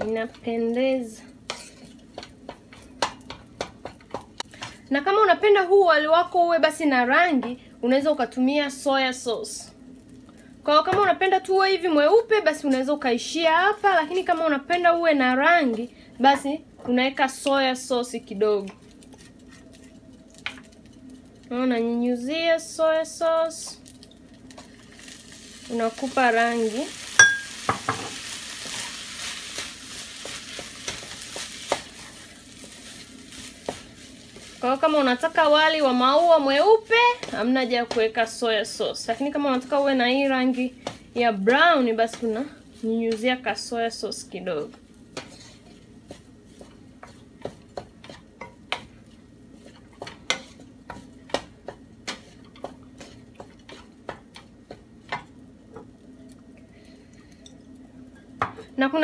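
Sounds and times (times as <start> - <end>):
rice sizzling in a frying pan: 0.0 - 59.0
wooden spoon scraping a pan: 1.5 - 4.8, 28.1 - 44.0, 44.6 - 55.3.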